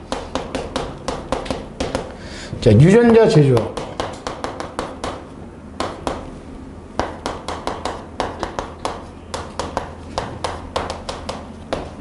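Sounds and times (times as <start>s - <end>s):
chalk tapping on a blackboard: 0.0s - 2.2s, 3.0s - 5.2s, 7.0s - 12.0s.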